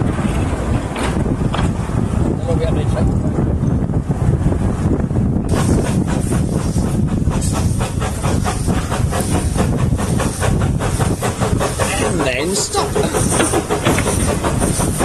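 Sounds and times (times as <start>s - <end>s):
steam locomotive chuffing: 4.2s - 15.0s.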